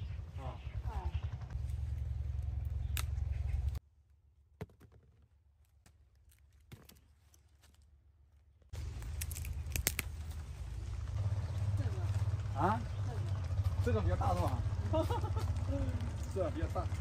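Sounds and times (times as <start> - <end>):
fruit snapping off stem: 9.0 - 10.3.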